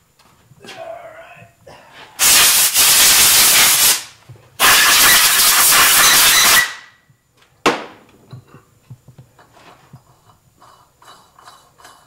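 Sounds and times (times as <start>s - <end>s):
compressed air blow gun hiss: 2.2s - 6.0s.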